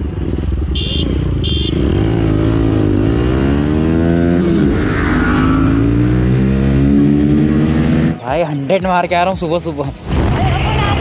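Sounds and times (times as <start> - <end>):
motorcycle engine accelerating: 0.0 - 8.2
road and wind noise: 0.0 - 11.0.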